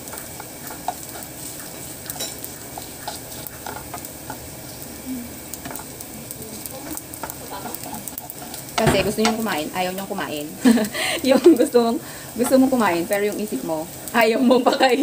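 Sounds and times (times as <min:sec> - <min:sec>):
wooden spoon scraping a pan: 0:00.0 - 0:05.0, 0:05.6 - 0:09.8
garlic sizzling in oil: 0:00.0 - 0:15.0.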